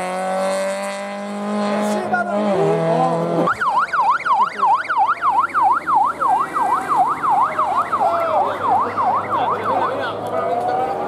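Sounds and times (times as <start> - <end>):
electronic siren yelping: 3.4 - 10.1.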